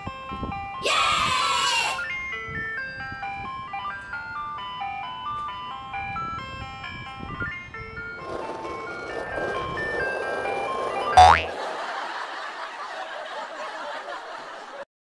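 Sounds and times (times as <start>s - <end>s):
ice cream van jingle: 2.1s - 12.3s.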